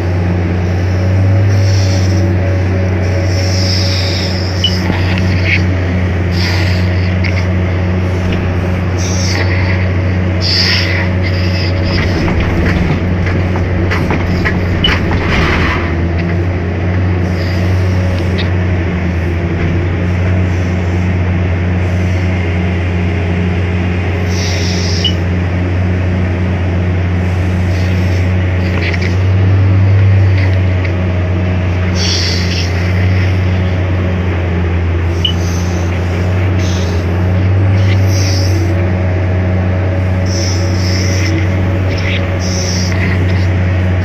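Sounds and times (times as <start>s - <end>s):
excavator engine running: 0.0s - 44.0s.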